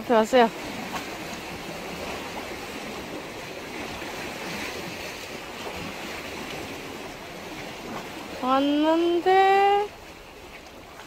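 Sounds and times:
sea water washing against rocks: 0:00.0 - 0:11.0.

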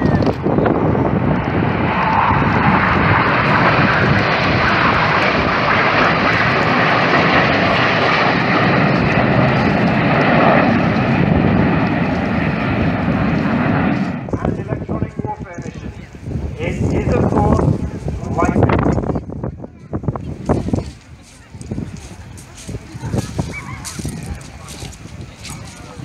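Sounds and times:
loud jet roar: 0:00.0 - 0:20.8.

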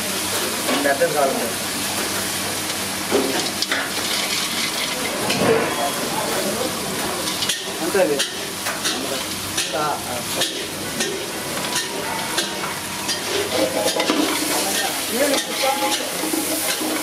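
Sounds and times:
food frying hiss: 0:00.0 - 0:17.0
metal ladle scraping pan: 0:10.3 - 0:17.0.

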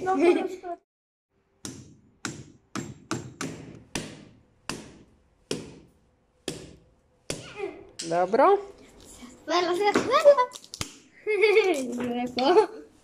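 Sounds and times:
hammer knocking on coconut: 0:01.6 - 0:08.1.

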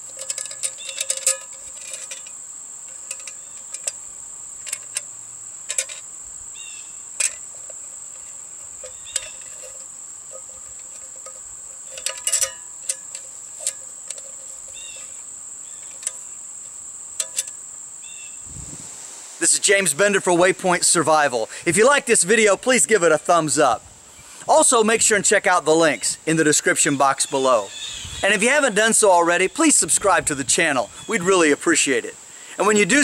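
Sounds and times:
metal clicks of tin can handles: 0:00.0 - 0:04.0, 0:04.6 - 0:06.1, 0:07.2 - 0:15.2, 0:15.8 - 0:16.3, 0:17.2 - 0:17.6
insect chorus droning: 0:00.0 - 0:33.0.

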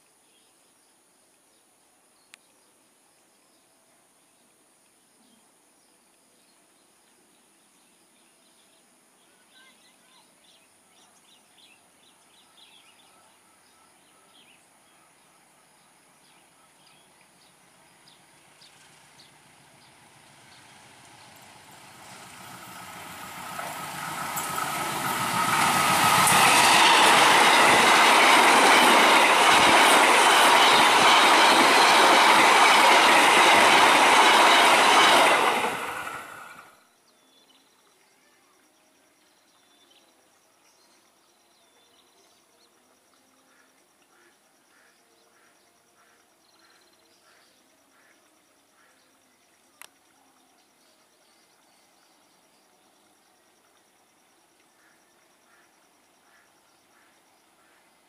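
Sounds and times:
train wheels rushing on rails: 0:17.6 - 0:36.8.

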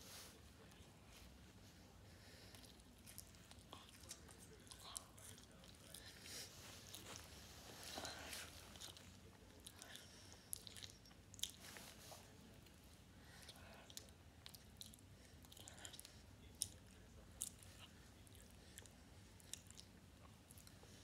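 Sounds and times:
person chewing with open mouth: 0:02.5 - 0:07.4, 0:08.3 - 0:11.9, 0:13.2 - 0:21.0.

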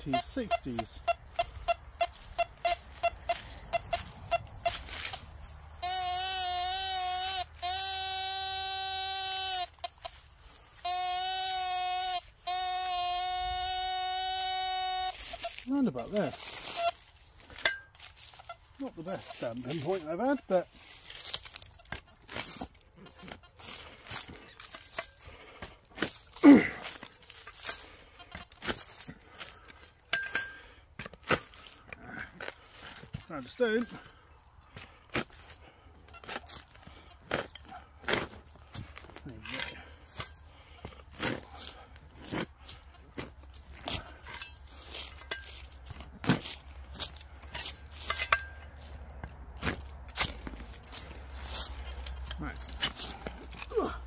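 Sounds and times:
metal detector buzzy tone: 0:00.0 - 0:05.1, 0:05.8 - 0:10.2, 0:10.8 - 0:15.7
metal detector beeping: 0:00.0 - 0:05.2, 0:05.8 - 0:10.2, 0:10.8 - 0:17.0
spade cutting into turf: 0:41.1 - 0:49.0.

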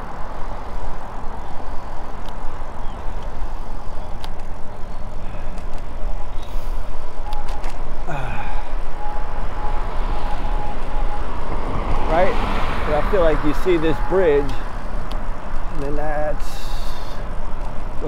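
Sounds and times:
bicycle road noise: 0:00.0 - 0:18.0
car traffic: 0:00.0 - 0:18.0.

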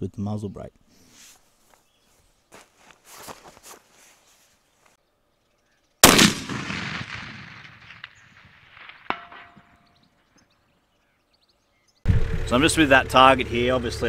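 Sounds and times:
rifle shot with rolling echo: 0:06.0 - 0:09.9.

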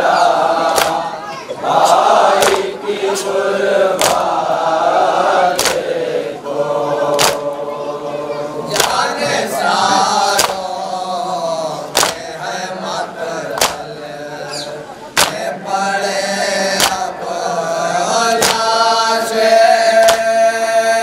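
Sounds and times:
men chanting in unison: 0:00.0 - 0:21.0
chest-beating slaps: 0:00.7 - 0:01.1, 0:01.8 - 0:02.7, 0:04.0 - 0:04.3, 0:05.5 - 0:05.9, 0:07.1 - 0:07.5, 0:08.7 - 0:09.1, 0:10.3 - 0:10.7, 0:11.9 - 0:12.3, 0:13.5 - 0:13.9, 0:15.1 - 0:15.5, 0:16.8 - 0:17.1, 0:18.4 - 0:18.7, 0:20.0 - 0:20.3.

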